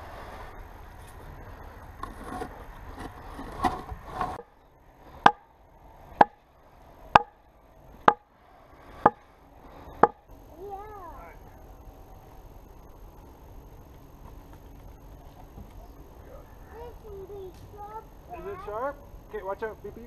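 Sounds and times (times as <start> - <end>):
hatchet striking logs: 5.2 - 5.5, 6.1 - 6.4, 7.1 - 7.4, 8.0 - 8.3, 9.0 - 9.2, 10.0 - 10.2.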